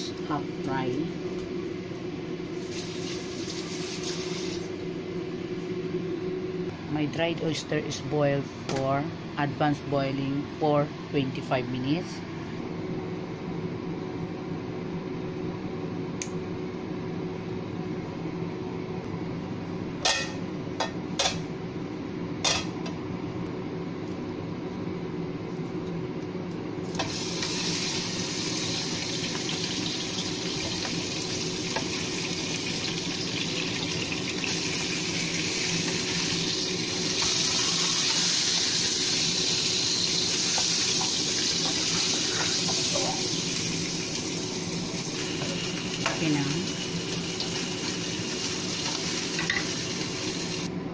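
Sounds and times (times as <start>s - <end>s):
fish sizzling in hot oil: 2.6s - 4.7s, 27.0s - 50.7s.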